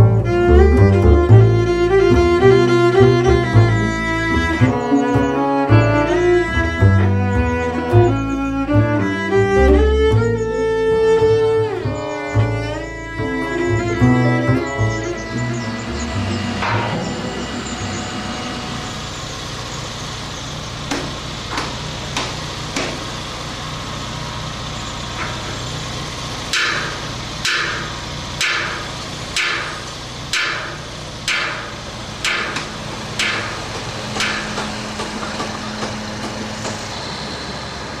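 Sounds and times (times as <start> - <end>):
crane engine idling: 0.0 - 38.0
sledgehammer clanging on steel: 26.5 - 36.4.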